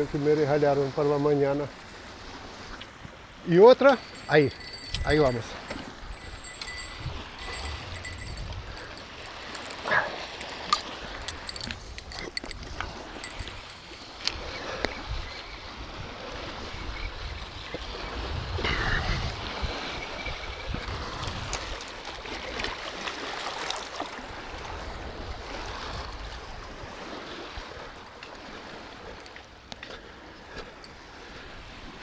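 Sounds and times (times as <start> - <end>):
water lapping: 0.0 - 32.0
wind on microphone: 4.0 - 22.7, 24.2 - 29.2.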